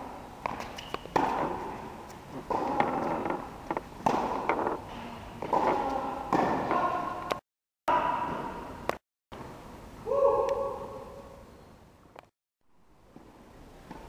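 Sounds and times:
tennis balls struck by rackets: 0.4 - 7.4.

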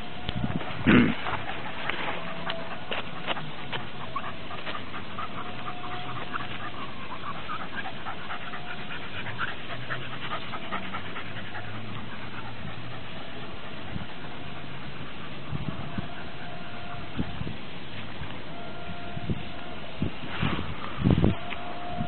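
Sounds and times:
scuffs and clicks: 0.6 - 7.9
dog panting: 1.1 - 16.2.

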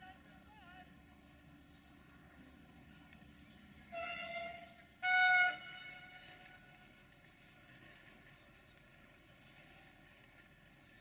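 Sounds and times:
train horn blasts: 3.9 - 6.6.

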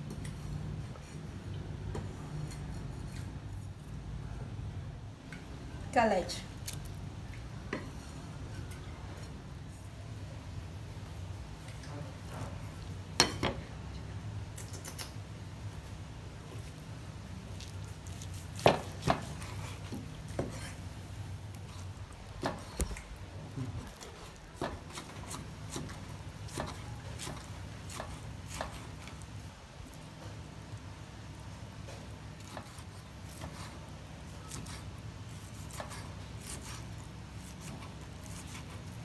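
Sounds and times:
faint low hum: 0.0 - 39.0.

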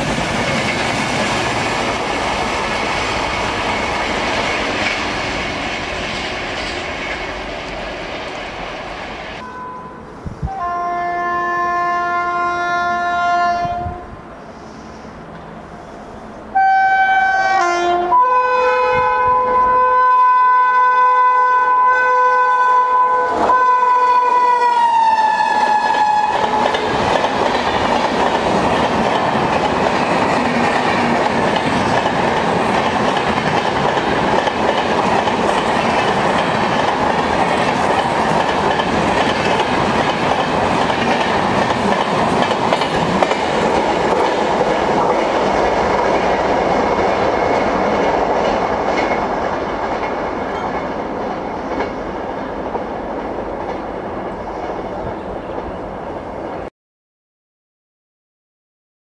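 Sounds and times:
train wheels clattering on track: 0.0 - 9.4, 25.8 - 55.8.

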